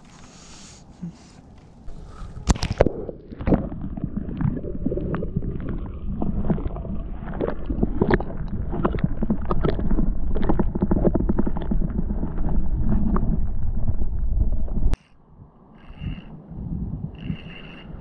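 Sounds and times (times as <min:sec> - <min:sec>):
underwater rumble of moving water: 0:01.7 - 0:17.7
underwater clicks and taps: 0:02.4 - 0:03.6, 0:07.4 - 0:13.4.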